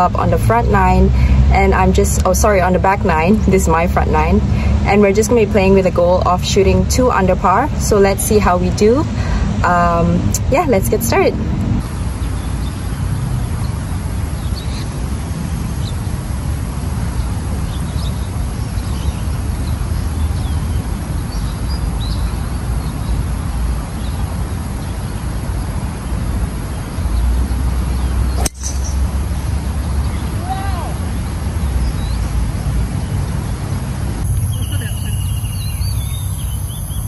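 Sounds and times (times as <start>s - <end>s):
low outdoor rumble: 0.0s - 36.1s
birds chirping: 17.0s - 37.0s
golf ball struck sharp crack: 28.4s - 29.0s.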